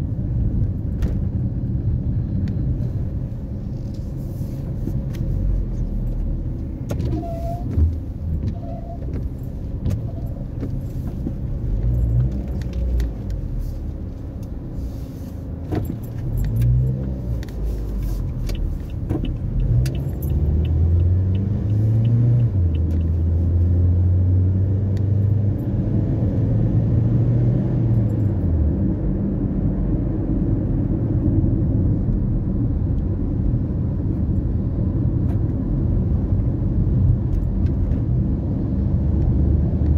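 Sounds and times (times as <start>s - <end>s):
car engine and road noise: 0.0s - 39.9s.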